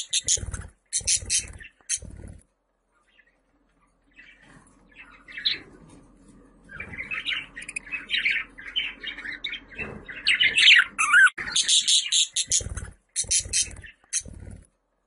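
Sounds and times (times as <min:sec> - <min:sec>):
budgerigar warbling and chattering: 0:00.0 - 0:02.2, 0:10.3 - 0:14.5.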